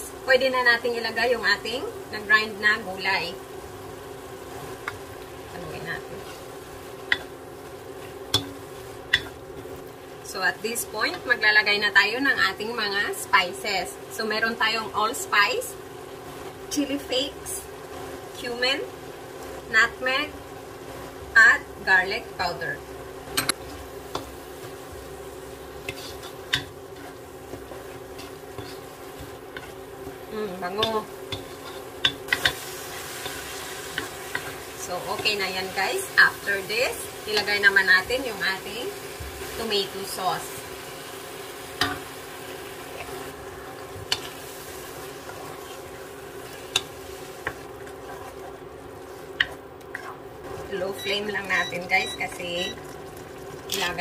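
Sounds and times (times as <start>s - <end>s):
filling sizzling in a wok: 0.0s - 54.0s
steady low hum: 0.0s - 54.0s
wooden spatula scraping a pan: 25.8s - 26.4s, 27.0s - 35.4s, 47.4s - 50.8s.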